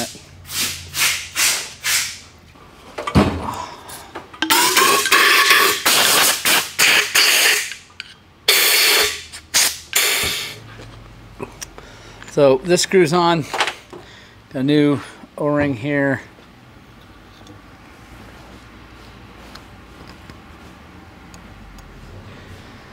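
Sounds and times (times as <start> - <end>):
short hissing air blasts: 0.0 - 2.2, 8.5 - 10.6.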